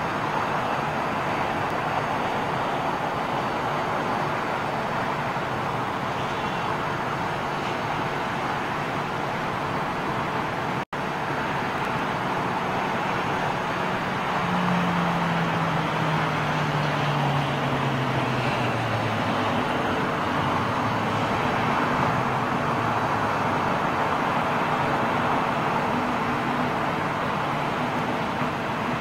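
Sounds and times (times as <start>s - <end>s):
ground vehicles: 0.0s - 29.0s
jet aircraft roar: 0.0s - 29.0s.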